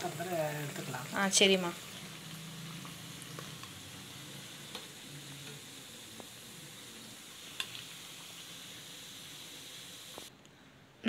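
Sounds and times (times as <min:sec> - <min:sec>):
deep-frying in hot oil: 0:00.0 - 0:10.3.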